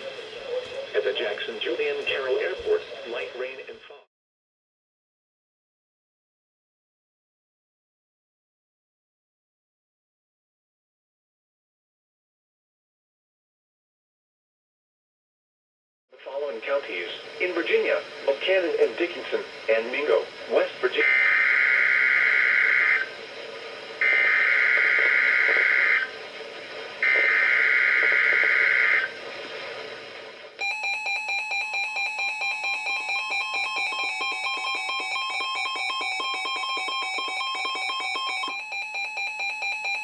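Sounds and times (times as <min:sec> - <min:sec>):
steady warning alarm tone: 0:16.3 - 0:23.3, 0:23.9 - 0:26.2, 0:27.0 - 0:29.2, 0:30.6 - 0:40.0
screeching digital bursts: 0:20.5 - 0:23.1, 0:24.0 - 0:26.1, 0:27.0 - 0:29.2
pulsing alarm beeps: 0:21.0 - 0:23.1, 0:24.0 - 0:26.1, 0:27.0 - 0:29.1, 0:30.6 - 0:40.0.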